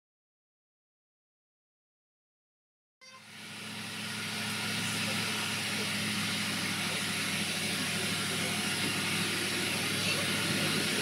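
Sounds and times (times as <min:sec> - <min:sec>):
diesel locomotive engine running: 0:03.0 - 0:11.0.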